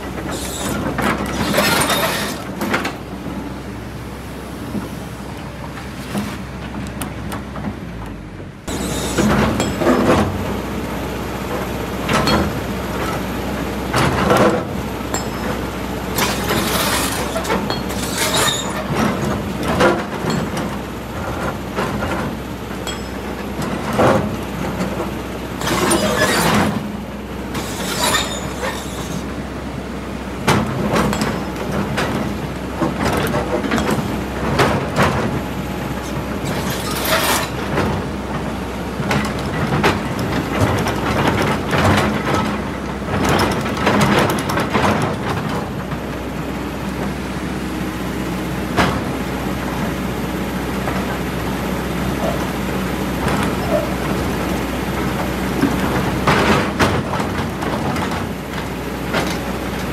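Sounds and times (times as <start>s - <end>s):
excavator diesel engine drone: 0.0s - 59.9s
bucket scraping against rocks: 0.3s - 2.6s, 16.2s - 19.0s.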